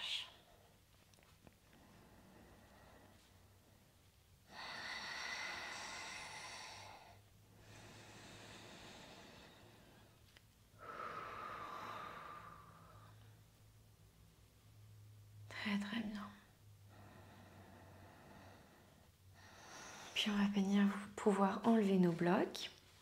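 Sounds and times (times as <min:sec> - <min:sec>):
faint low hum: 0:00.0 - 0:23.0
woman breathing deeply: 0:01.6 - 0:13.5, 0:16.6 - 0:20.2.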